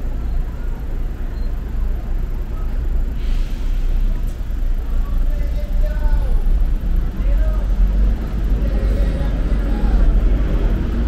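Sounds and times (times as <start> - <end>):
city street noise: 0.0 - 11.0
brief hiss: 3.2 - 4.4.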